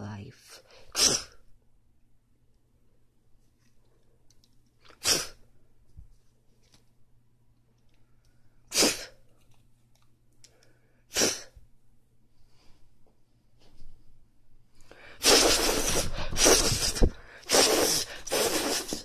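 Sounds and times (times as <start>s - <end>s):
person sneezing puffs: 0.6s - 1.4s, 4.9s - 5.4s, 8.7s - 9.2s, 11.1s - 11.6s, 14.9s - 19.0s.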